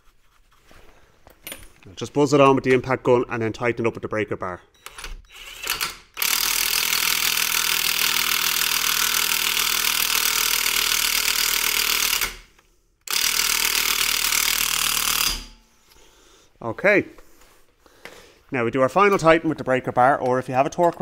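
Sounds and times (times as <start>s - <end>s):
impact wrench hammering: 5.5s - 12.5s, 13.1s - 15.6s.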